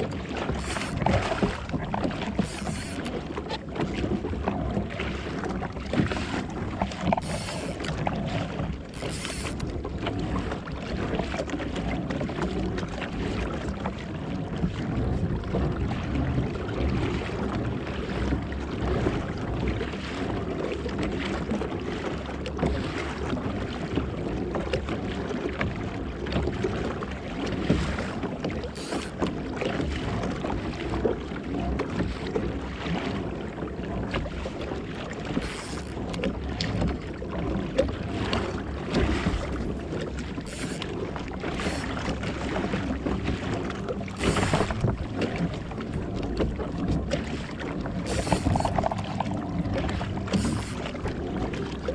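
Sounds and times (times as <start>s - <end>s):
water slapping against kayak hull: 0.0s - 51.9s
water splashes: 0.0s - 51.9s
wind rumbling on microphone: 23.3s - 51.9s.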